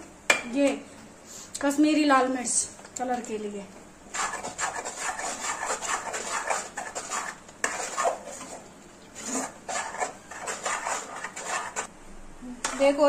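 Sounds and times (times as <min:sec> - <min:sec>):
ladle scraping paste in metal pan: 0:04.1 - 0:11.9, 0:12.6 - 0:13.0.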